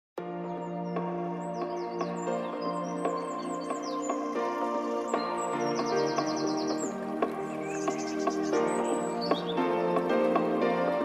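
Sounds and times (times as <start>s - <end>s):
background music with held chord: 0.2s - 11.0s
high falling bird-like chirps: 1.6s - 9.6s.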